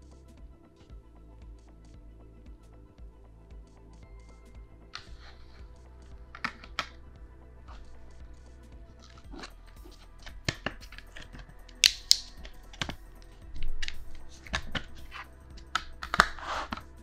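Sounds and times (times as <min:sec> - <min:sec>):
sharp plastic snaps: 0:10.5 - 0:13.0.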